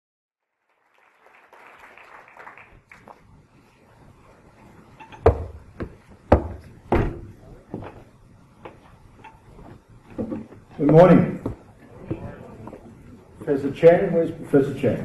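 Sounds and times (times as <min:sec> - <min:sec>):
loud thumps ringing in a hall: 0:05.1 - 0:07.4
faint murmur of voices: 0:10.9 - 0:13.7.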